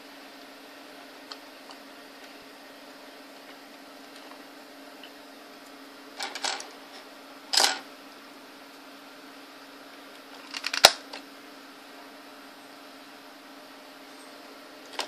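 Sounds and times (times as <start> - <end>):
hard plastic toy clicks: 10.5 - 11.0.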